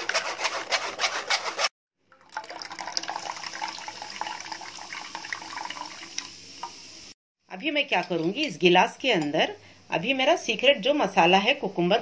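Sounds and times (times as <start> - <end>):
juice dripping into steel bowl: 2.0 - 6.7.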